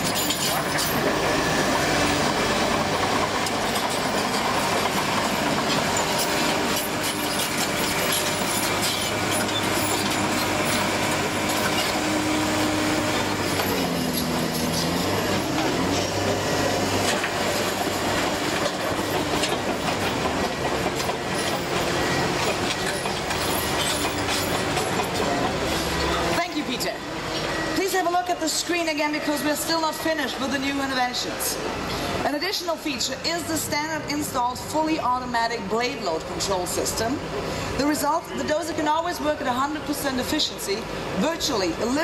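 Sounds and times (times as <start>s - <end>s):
steel tracks clattering: 0.0s - 32.8s
diesel engine running: 0.0s - 42.0s.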